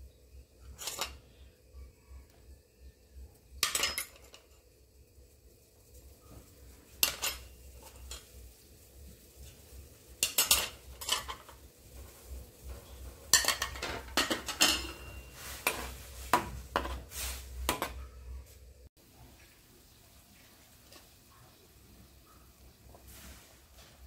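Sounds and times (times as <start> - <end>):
metal spoon clinking against wok: 3.6 - 4.5, 7.0 - 8.2, 10.2 - 11.5, 13.3 - 15.9.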